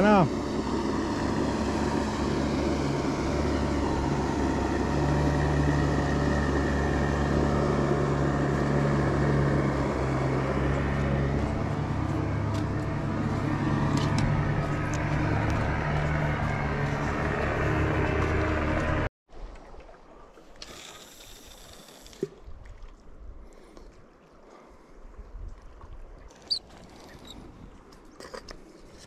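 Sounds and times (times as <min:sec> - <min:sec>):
outboard motor running: 0:00.0 - 0:19.1.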